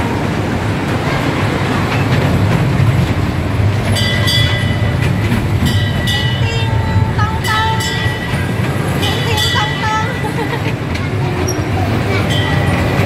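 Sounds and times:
kiddie train rumbling on track: 0.0 - 13.0.

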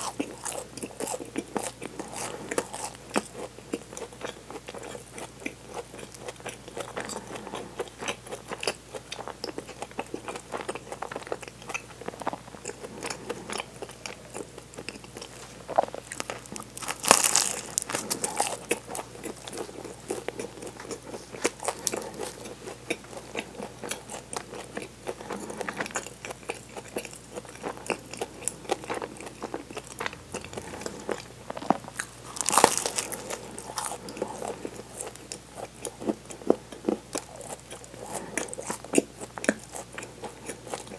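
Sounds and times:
chewing flaky pastry: 0.0 - 40.9
crunching bites: 15.8 - 39.8.

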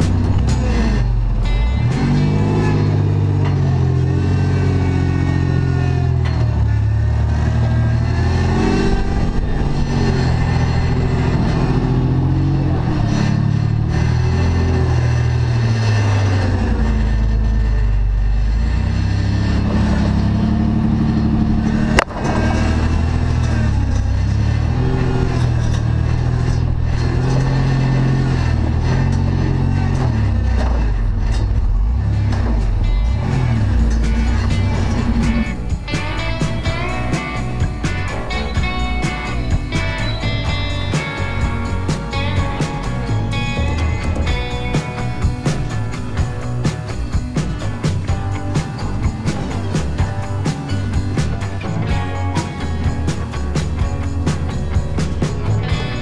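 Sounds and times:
engine revving unevenly: 0.0 - 56.0.

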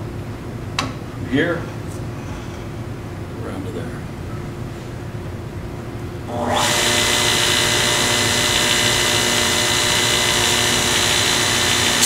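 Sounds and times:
belt sharpener motor whining: 6.3 - 12.0.

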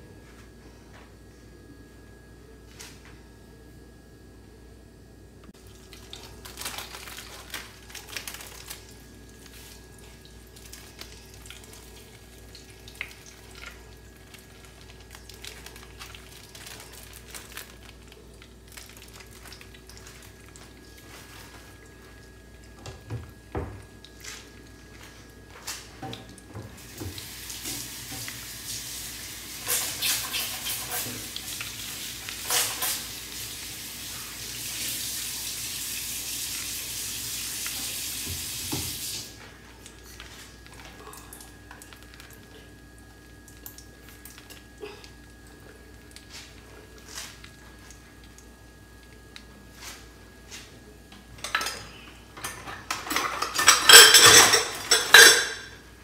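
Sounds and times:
spices sizzling in hot oil: 26.8 - 39.2.

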